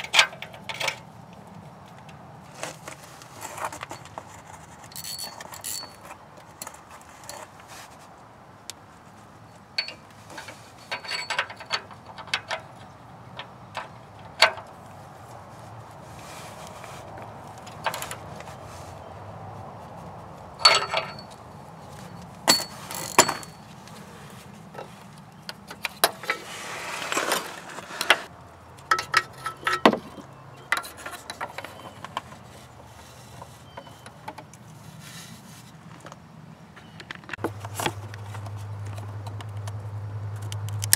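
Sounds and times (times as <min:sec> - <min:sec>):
short rustle: 0:02.4 - 0:11.6, 0:14.8 - 0:25.4, 0:26.1 - 0:28.3
metallic clinks of hand tools: 0:04.9 - 0:06.1, 0:20.6 - 0:21.4, 0:22.5 - 0:23.6.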